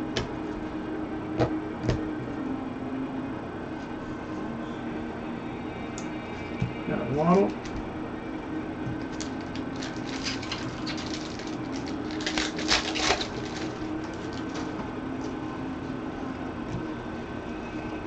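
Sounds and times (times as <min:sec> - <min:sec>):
cards rustling: 0:09.0 - 0:14.8
wrapper crinkling: 0:09.0 - 0:14.8.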